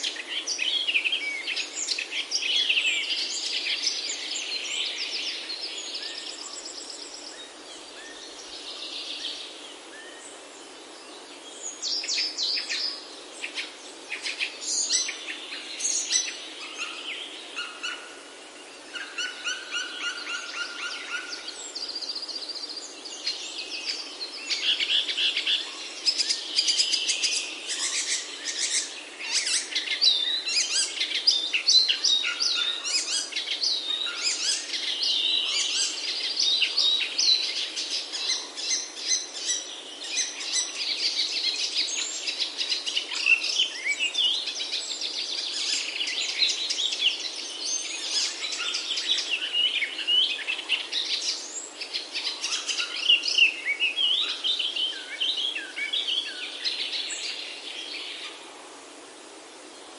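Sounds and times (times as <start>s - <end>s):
songbirds chirping and singing: 0.0s - 58.4s.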